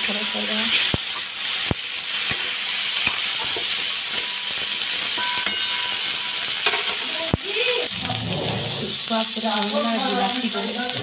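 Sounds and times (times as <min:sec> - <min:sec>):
prawns sizzling in oil: 0:00.0 - 0:11.0
metal spatula knocking pan: 0:05.1 - 0:07.1.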